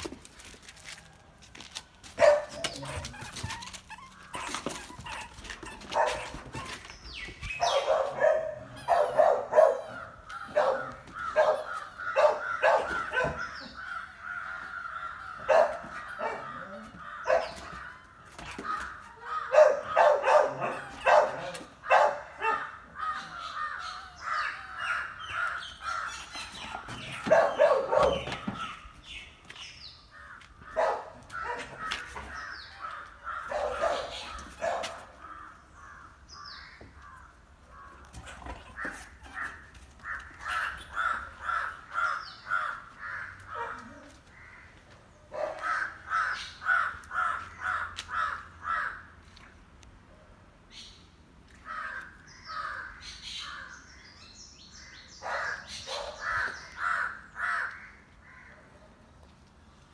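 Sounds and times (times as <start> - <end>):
dog barking: 2.2 - 2.8, 6.0 - 6.3, 7.6 - 13.4, 15.5 - 17.6, 19.5 - 22.7, 27.2 - 28.3, 30.8 - 31.8, 33.5 - 35.1, 43.5 - 43.9, 45.3 - 45.9, 55.2 - 56.3.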